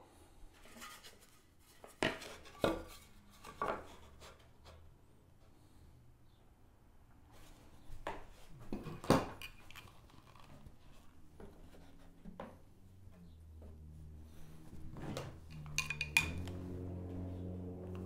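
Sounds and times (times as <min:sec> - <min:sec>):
background music with low notes: 0:16.4 - 0:18.0.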